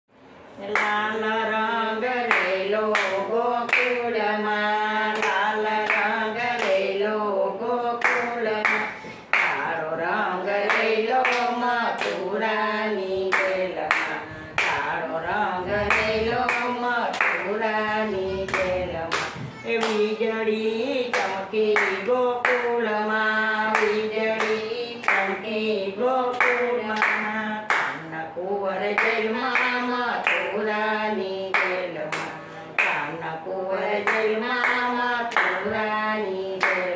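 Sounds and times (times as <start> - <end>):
women singing unaccompanied: 0.6 - 36.9
hand claps: 2.3 - 4.0, 8.0 - 9.7, 10.7 - 12.2, 15.9 - 17.5, 18.5 - 20.1, 21.1 - 22.8, 23.7 - 25.3, 26.3 - 28.1, 29.0 - 30.6, 31.5 - 33.1, 34.1 - 35.7, 36.6 - 36.9.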